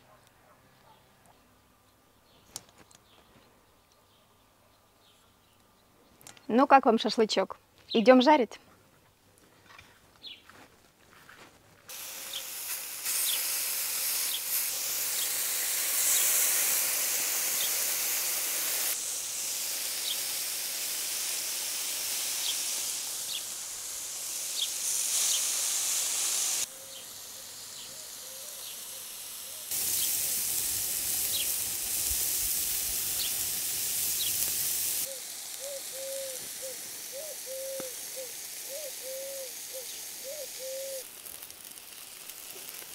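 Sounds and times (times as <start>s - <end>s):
meat sizzling on a grill: 11.9s - 42.9s.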